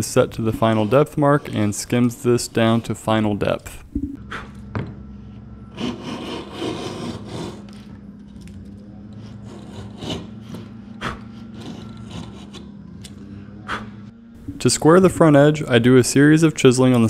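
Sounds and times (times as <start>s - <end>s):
router plane shaving wood: 0.2s - 3.2s, 5.7s - 7.8s, 9.1s - 12.8s.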